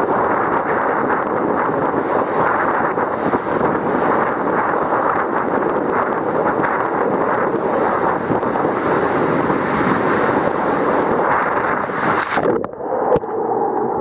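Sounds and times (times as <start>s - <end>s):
water rushing in slide tube: 0.0s - 13.3s.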